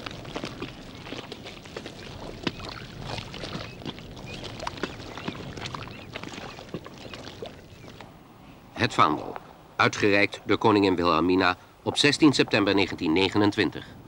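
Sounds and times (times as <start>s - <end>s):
mud squelching and slapping: 0.0s - 8.1s.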